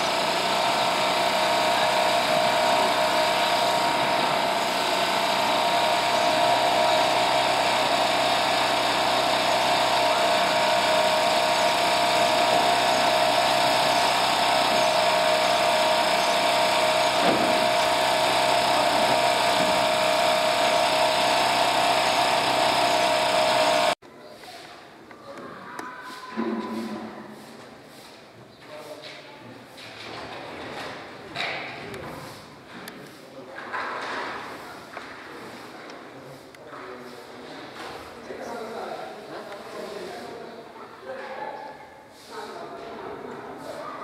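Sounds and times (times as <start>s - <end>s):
steady mechanical drone: 0.0s - 24.0s.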